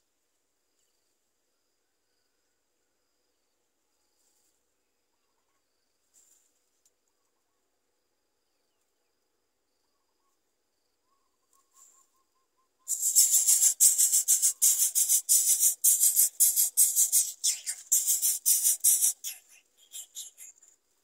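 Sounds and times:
nestlings begging calls: 0:12.9 - 0:20.5.

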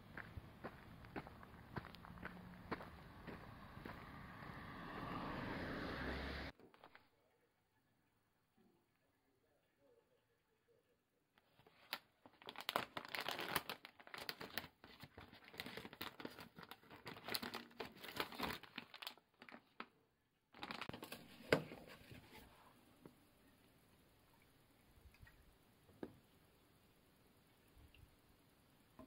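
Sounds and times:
plastic pouch crinkling: 0:11.4 - 0:19.9, 0:20.5 - 0:21.4.

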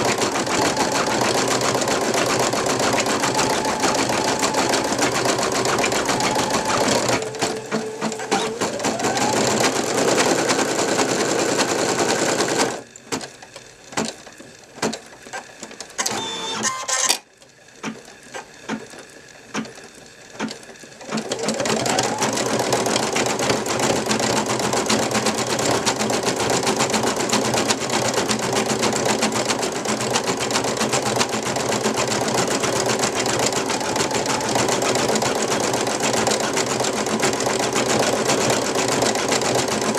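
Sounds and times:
embroidery machine stitching: 0:00.0 - 0:17.2, 0:17.8 - 0:39.9
machine clicks: 0:00.0 - 0:39.9
brief tone: 0:16.0 - 0:17.0.

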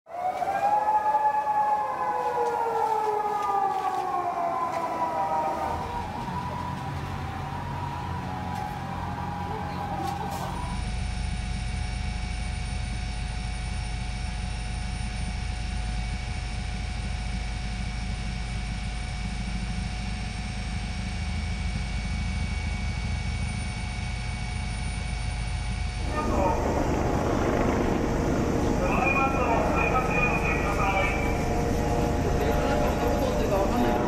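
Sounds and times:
helicopter engine and rotor drone: 0:00.2 - 0:34.0.

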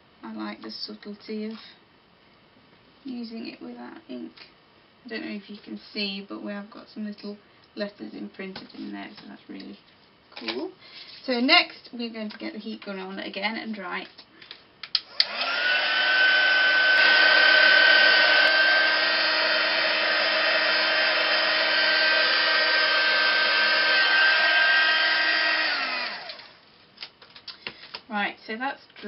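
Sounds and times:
heat gun switch clicks: 0:14.8 - 0:15.4
heat gun fan whine: 0:14.8 - 0:26.7.

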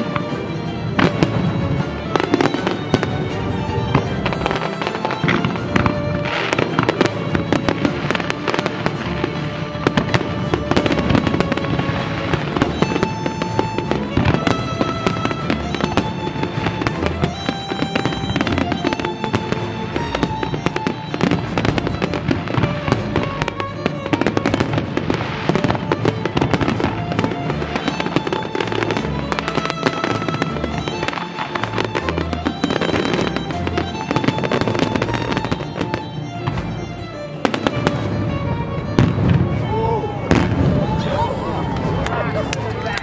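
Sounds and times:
fireworks bangs and crackling: 0:00.0 - 0:43.0
music playing: 0:00.0 - 0:43.0.

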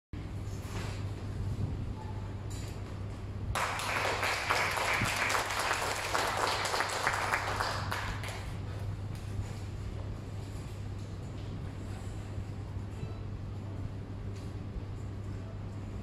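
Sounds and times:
steady low hum: 0:00.2 - 0:16.0
audience applauding: 0:03.6 - 0:08.5.

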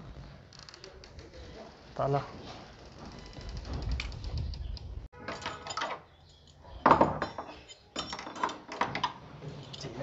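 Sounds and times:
padlock and latch rattling: 0:03.9 - 0:09.9.

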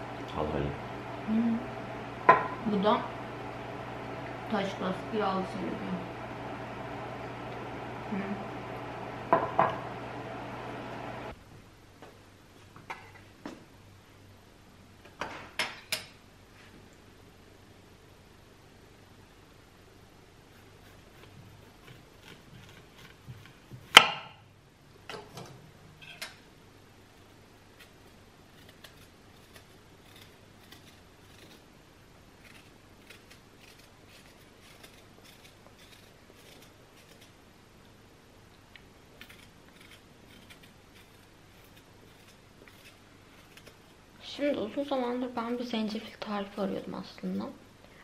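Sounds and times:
knife knocking on cutting board: 0:02.3 - 0:02.6, 0:09.3 - 0:09.8
ginger skin scraping: 0:32.4 - 0:37.4, 0:39.2 - 0:44.0.

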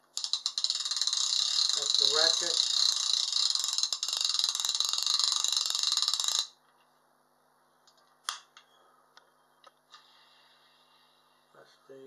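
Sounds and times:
fishing reel ratchet clicking: 0:00.1 - 0:06.6
reel being handled clicks: 0:00.2 - 0:06.5.

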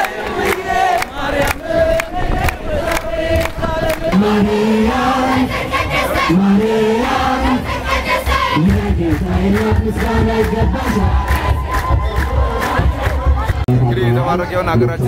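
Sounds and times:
rhythmic handclaps: 0:00.0 - 0:04.5, 0:07.8 - 0:13.7
crowd singing a hymn: 0:00.0 - 0:13.7.

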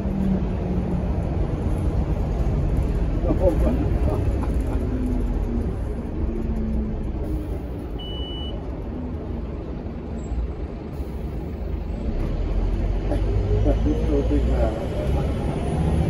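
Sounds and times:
bus engine and road rumble: 0:00.0 - 0:16.0
short high beep: 0:08.0 - 0:08.6.

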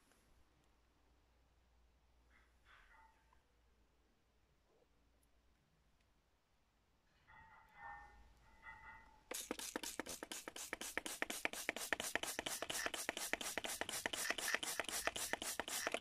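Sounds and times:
spray bottle squirting: 0:09.3 - 0:16.0.

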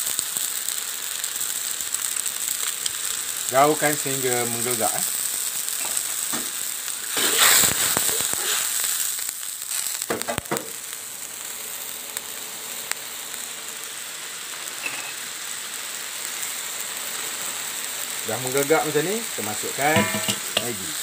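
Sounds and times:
burst of crackling: 0:00.0 - 0:21.0.

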